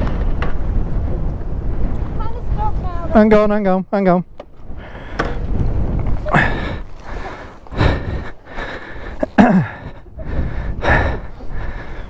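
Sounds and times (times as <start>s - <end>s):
person breathing hard: 4.8s - 5.4s, 6.2s - 12.0s
person groaning: 6.2s - 6.8s.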